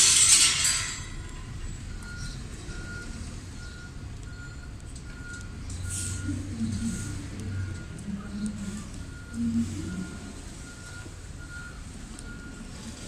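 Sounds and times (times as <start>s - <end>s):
reversing alarm beeping: 0.0s - 13.0s
low engine rumble: 1.0s - 13.0s
air brakes hissing: 5.7s - 7.1s.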